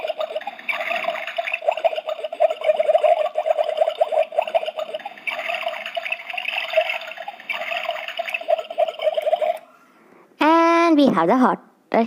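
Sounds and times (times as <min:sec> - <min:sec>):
toy kettle bubbling: 0:00.0 - 0:09.6.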